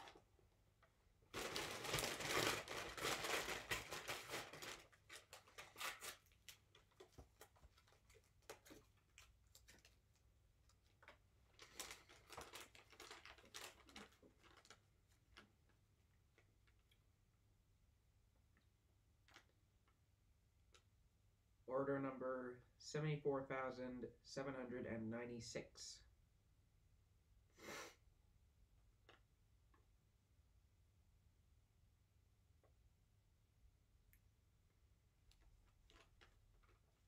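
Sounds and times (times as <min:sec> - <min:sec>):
paper bag crinkling: 0:01.3 - 0:16.8, 0:35.4 - 0:37.0.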